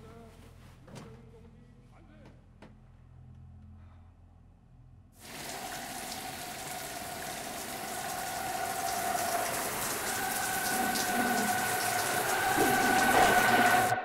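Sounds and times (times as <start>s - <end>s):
shower spray on head and hair: 5.3s - 13.9s.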